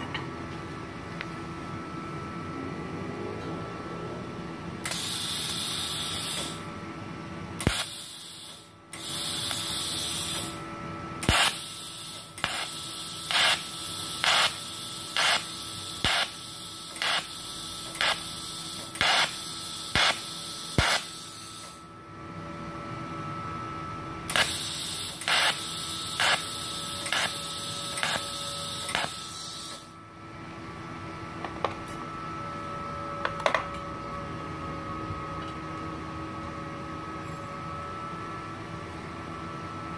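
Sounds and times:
faint machine whine: 0:00.0 - 0:39.9
welding arc hissing: 0:04.8 - 0:06.7, 0:07.6 - 0:10.6, 0:11.2 - 0:21.9, 0:24.3 - 0:30.0.

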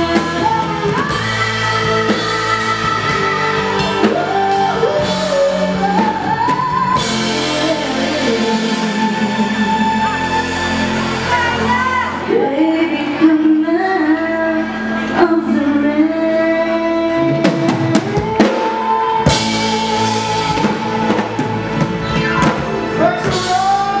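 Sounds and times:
drum kit: 0:00.0 - 0:12.3, 0:17.2 - 0:24.0
electric guitar: 0:00.0 - 0:24.0
keyboard: 0:00.0 - 0:24.0.

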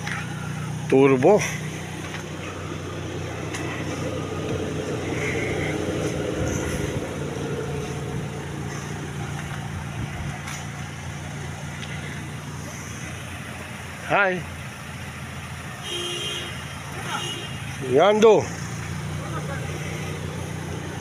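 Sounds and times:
vehicle engine humming: 0:00.0 - 0:21.0
vehicle passing by: 0:00.0 - 0:21.0.

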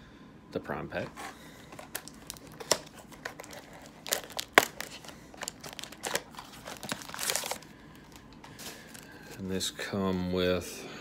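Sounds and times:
packaging crinkling and tearing: 0:01.6 - 0:09.4.

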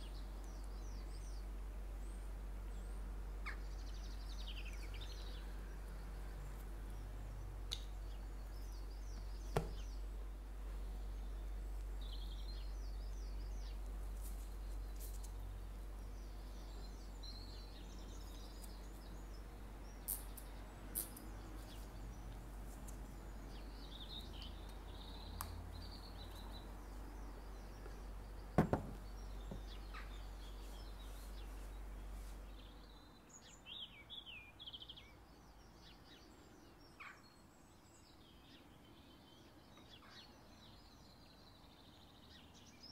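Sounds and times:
birds chirping faintly: 0:00.0 - 0:42.9.

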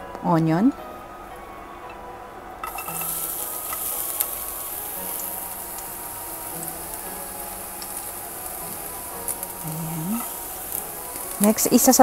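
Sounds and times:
onion sizzling in frying pan: 0:02.6 - 0:12.0.

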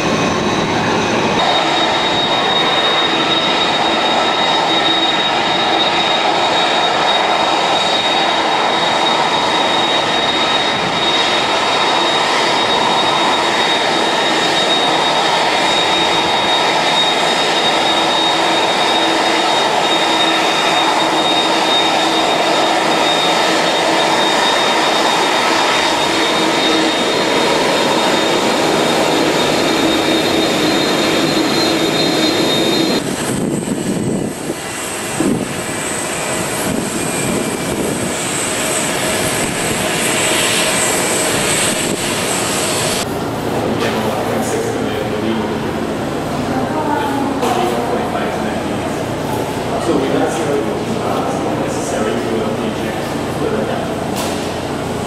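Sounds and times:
jet engines taxiing: 0:00.0 - 0:55.0.

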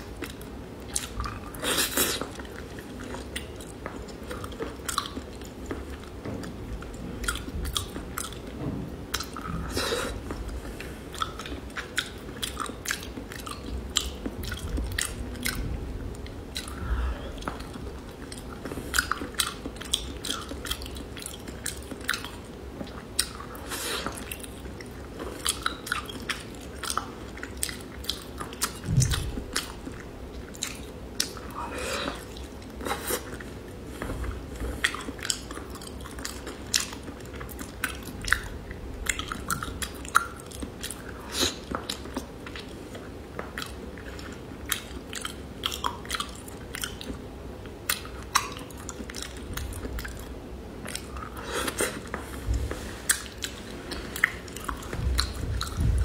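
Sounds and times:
person chewing: 0:00.0 - 0:56.0.

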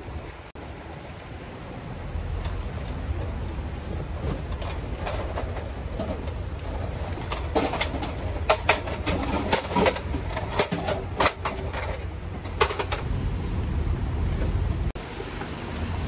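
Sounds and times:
steady low rumble: 0:00.0 - 0:14.6
metal folding stools clattering: 0:03.9 - 0:13.1.

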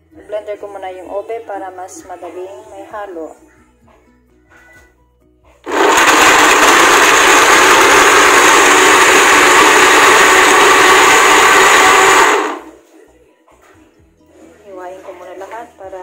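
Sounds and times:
blender running: 0:05.6 - 0:12.8.

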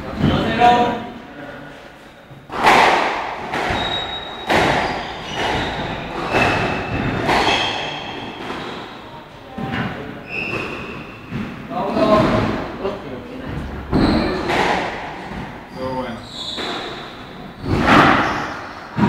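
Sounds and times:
squash ball smacks echoing: 0:02.5 - 0:08.9, 0:13.9 - 0:15.7, 0:17.6 - 0:19.0
shoes squeaking on wooden floor: 0:03.5 - 0:12.3, 0:13.4 - 0:18.8.

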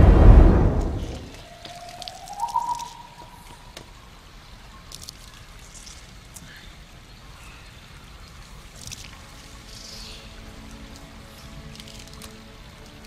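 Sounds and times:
short rising tone: 0:00.0 - 0:01.4
water trickling and dripping: 0:01.2 - 0:13.0.

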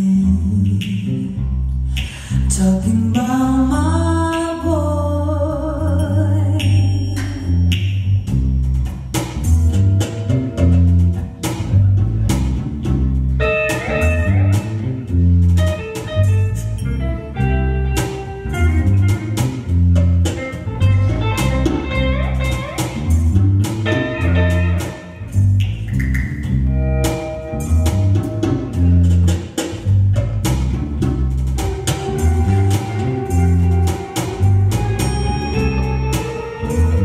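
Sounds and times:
jazz band playing: 0:07.2 - 0:37.0
electric guitar melody: 0:13.3 - 0:29.4, 0:31.6 - 0:37.0.

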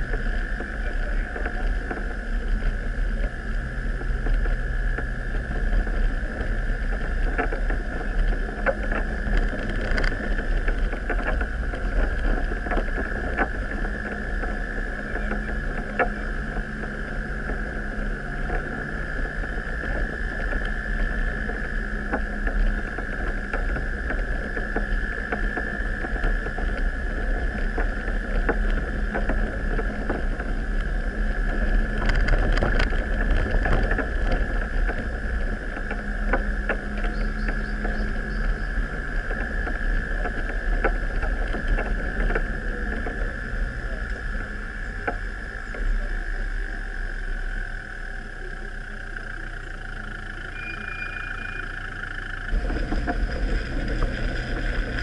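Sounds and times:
off-road vehicle engine rumble: 0:00.0 - 0:55.0
vehicle knocking over bumps: 0:52.5 - 0:55.0.

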